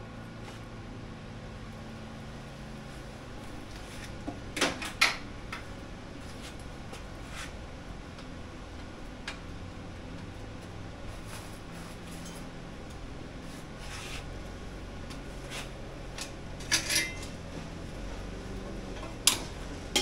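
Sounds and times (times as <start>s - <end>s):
steady low hum: 0.0s - 20.0s
metal pipe clinking and knocking: 16.7s - 17.3s.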